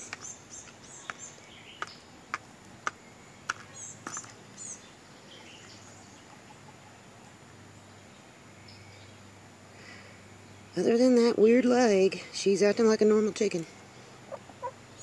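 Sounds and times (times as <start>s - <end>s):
hen pecking eggshells in plastic tub: 0.0s - 4.6s
small bird chirping: 0.0s - 9.3s, 14.0s - 15.0s.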